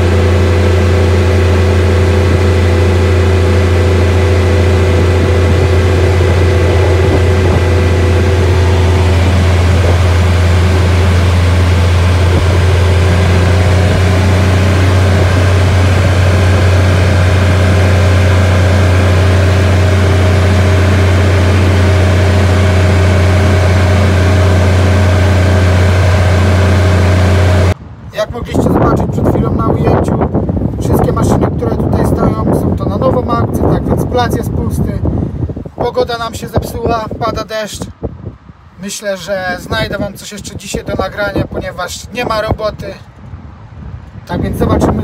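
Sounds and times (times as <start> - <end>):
utility vehicle engine drone: 0.0 - 35.8.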